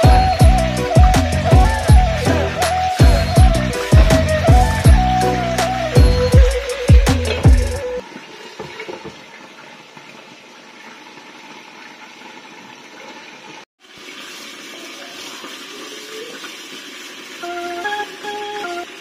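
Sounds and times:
chicken frying in oil: 8.0 - 19.0.

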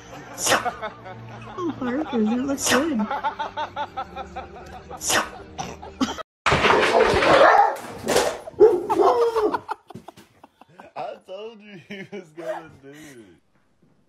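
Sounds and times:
person laughing: 8.8 - 11.1.

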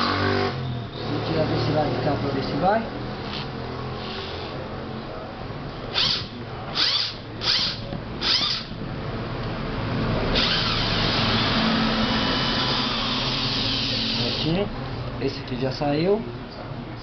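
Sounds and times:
cordless drill buzzing: 5.9 - 8.7, 10.4 - 14.5.

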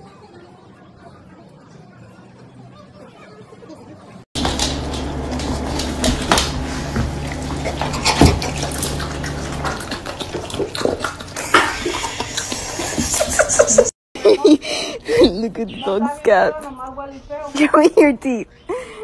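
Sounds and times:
steady low hum: 4.4 - 13.0
dog licking and lip-smacking: 7.2 - 12.8.

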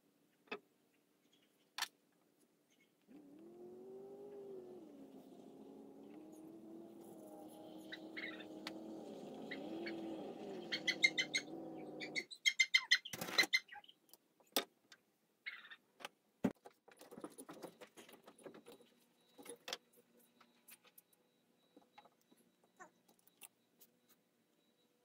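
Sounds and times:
engine running: 3.1 - 12.3.

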